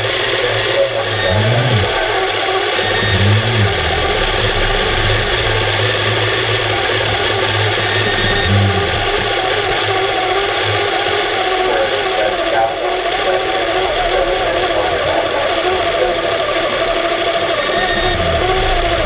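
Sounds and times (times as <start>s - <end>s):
underwater rushing noise: 0.0s - 12.5s, 13.1s - 19.0s
constant low hum: 0.0s - 19.0s
short low tones: 0.8s - 10.4s, 17.8s - 19.0s.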